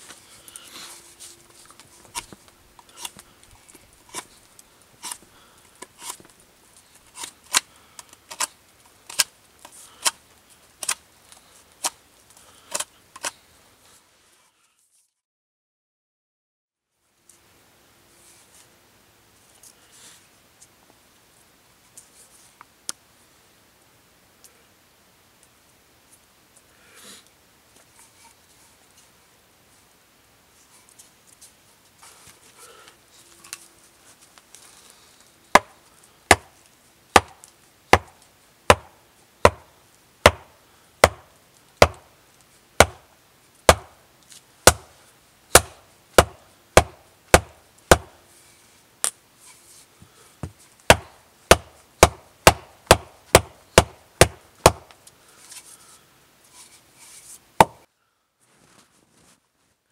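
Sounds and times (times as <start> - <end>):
faint rustling of hands: 0.0 - 7.2, 27.7 - 36.8, 55.0 - 57.5, 58.4 - 59.9
knife carving wood: 1.7 - 10.2, 10.8 - 11.0, 12.6 - 13.4, 40.2 - 42.0, 42.8 - 43.1, 44.6 - 48.2, 50.9 - 54.9
wooden maul knocking on stake: 40.2 - 41.2, 41.8 - 42.0, 44.7 - 44.9, 45.5 - 48.1, 50.4 - 54.9.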